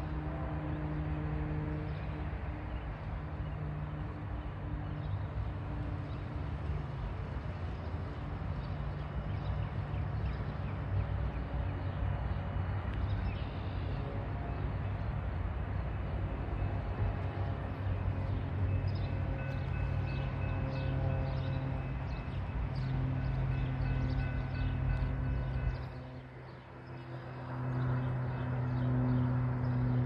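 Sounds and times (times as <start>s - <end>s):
low engine drone: 0.0s - 30.0s.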